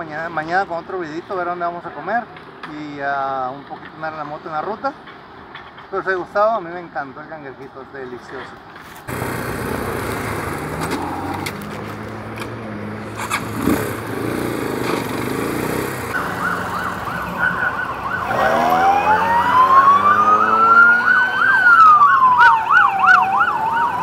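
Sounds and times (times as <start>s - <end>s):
engine running: 9.1s - 21.8s
siren wailing: 16.1s - 24.0s
siren yelping: 16.1s - 24.0s.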